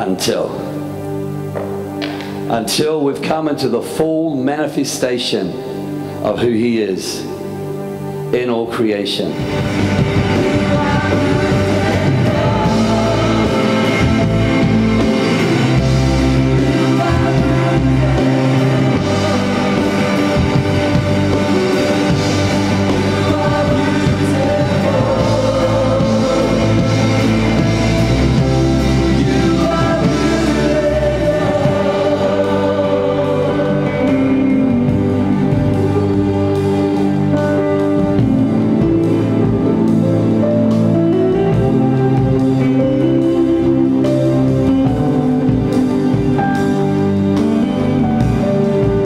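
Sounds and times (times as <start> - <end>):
live band playing: 0.0 - 2.6, 9.2 - 49.0
person singing: 10.2 - 40.1.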